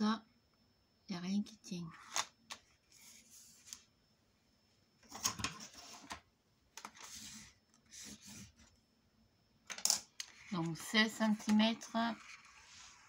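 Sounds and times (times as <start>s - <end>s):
cardstock rustling and sliding: 6.8s - 8.7s, 10.3s - 13.0s.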